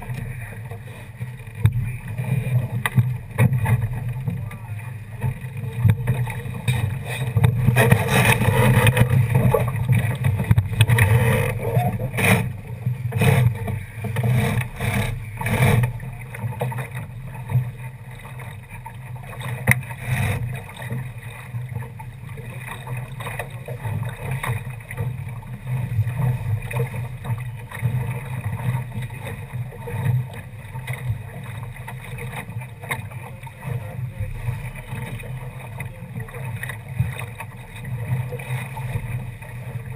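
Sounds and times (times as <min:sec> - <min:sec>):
wind rumbling on microphone: 0:00.0 - 0:18.1
water slapping along boat hull: 0:00.0 - 0:39.9.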